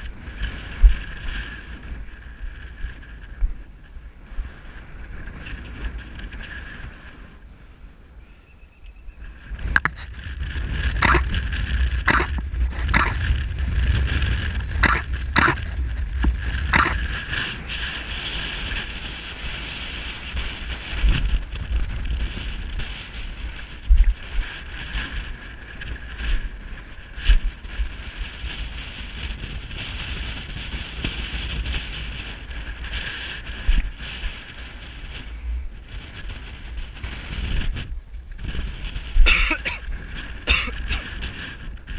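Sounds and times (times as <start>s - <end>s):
wind buffeting microphone: 0.0s - 41.9s
sharp clicks: 11.0s - 11.4s, 12.1s - 13.4s, 14.6s - 17.0s.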